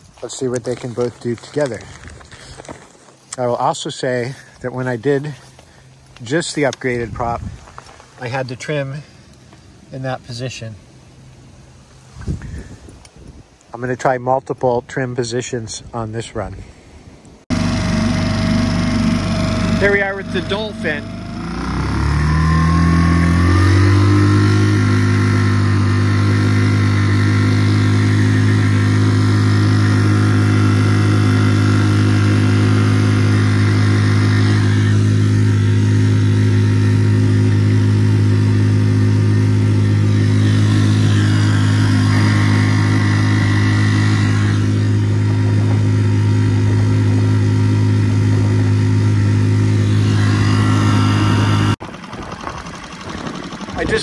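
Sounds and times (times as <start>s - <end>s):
outboard motor revving: 17.5s - 54.0s.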